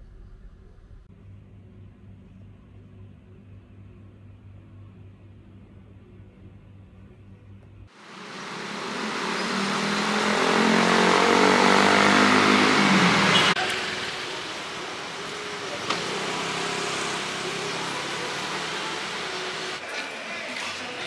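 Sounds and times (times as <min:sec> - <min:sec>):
city traffic noise: 0:08.0 - 0:19.8
motor scooter passing by: 0:08.1 - 0:19.8.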